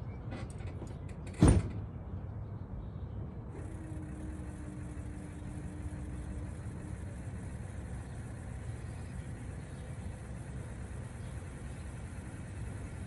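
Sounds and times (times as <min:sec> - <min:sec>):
diesel engine idling: 0:03.4 - 0:13.0
faint steady whine: 0:03.4 - 0:13.0.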